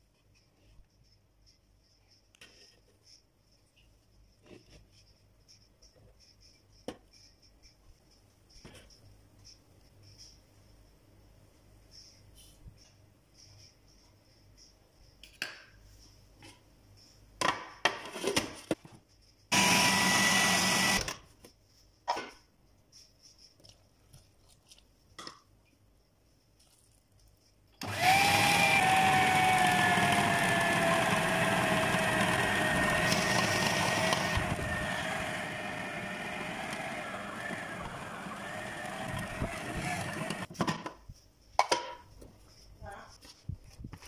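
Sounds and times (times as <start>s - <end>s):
food processor motor whining: 19.5s - 21.1s, 27.8s - 40.5s.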